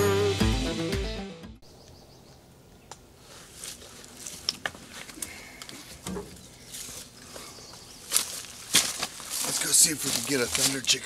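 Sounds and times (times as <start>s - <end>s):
backpack and clothing rustling: 3.2s - 11.0s.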